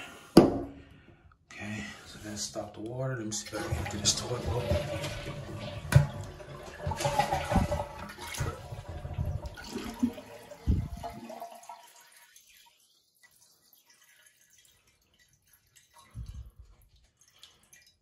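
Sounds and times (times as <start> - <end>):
toilet tank draining: 2.1 - 14.4.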